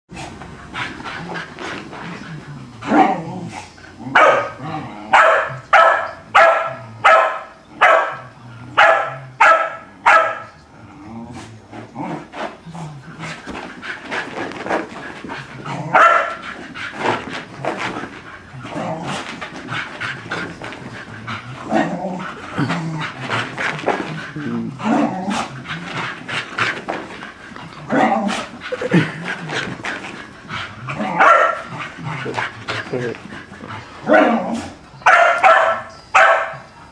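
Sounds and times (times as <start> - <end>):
dog barking and yipping: 4.2 - 4.6, 5.2 - 8.2, 8.8 - 10.5, 15.9 - 16.4, 31.0 - 31.7, 35.0 - 36.7.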